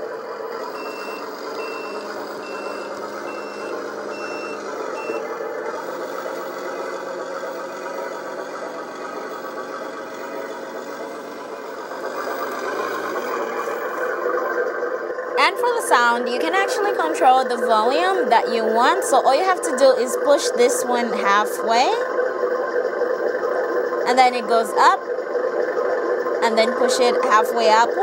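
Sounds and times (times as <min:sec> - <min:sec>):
simulated diesel engine running: 0:00.0 - 0:28.0
reversing beeper: 0:00.6 - 0:05.3.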